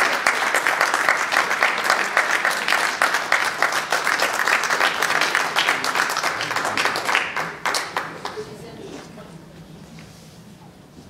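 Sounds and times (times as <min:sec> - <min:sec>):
audience applauding: 0:00.0 - 0:08.7.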